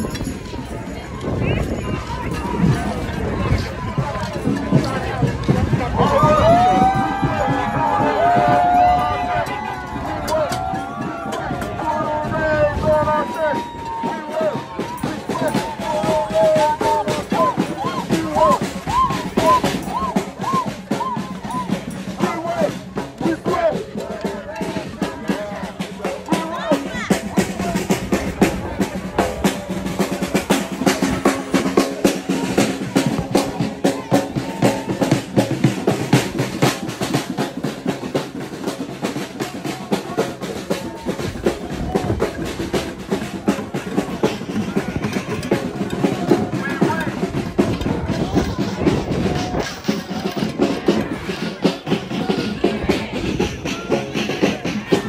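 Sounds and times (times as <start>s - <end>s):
crowd of voices: 0.0s - 55.0s
marching drum beaten rapidly: 2.0s - 55.0s.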